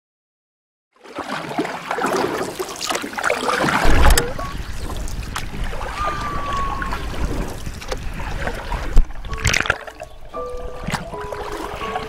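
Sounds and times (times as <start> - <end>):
water splashing and lapping: 1.0 - 12.0
wind buffeting microphone: 3.6 - 12.0.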